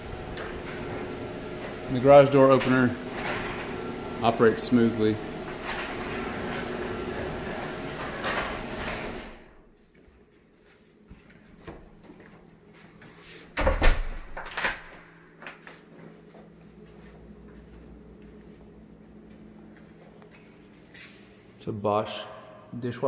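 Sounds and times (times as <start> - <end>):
garage door opener motor hum: 0.0 - 9.7.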